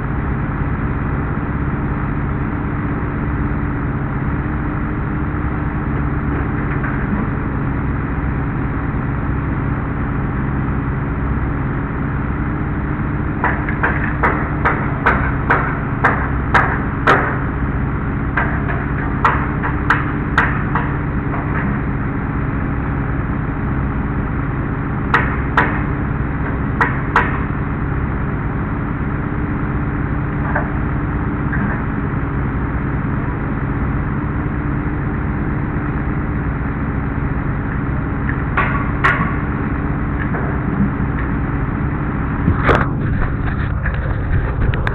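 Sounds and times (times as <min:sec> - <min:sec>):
scissor lift engine running: 0:00.0 - 0:44.9
sharp knocks: 0:13.4 - 0:17.4, 0:26.5 - 0:27.5.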